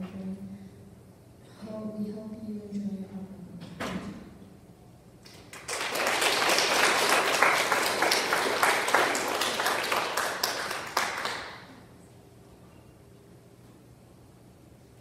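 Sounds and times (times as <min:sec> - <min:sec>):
children applauding: 0:05.3 - 0:11.8.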